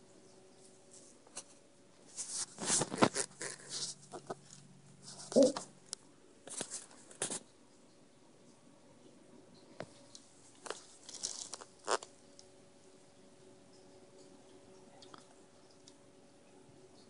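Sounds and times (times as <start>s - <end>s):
puppy vocal sound: 5.2s - 5.7s.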